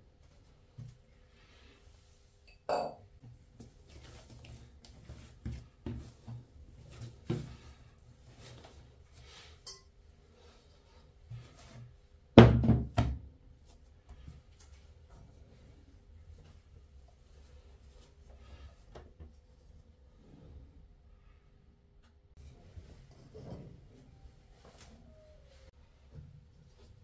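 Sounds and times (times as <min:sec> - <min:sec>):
dough being kneaded on a table: 0:03.2 - 0:09.4.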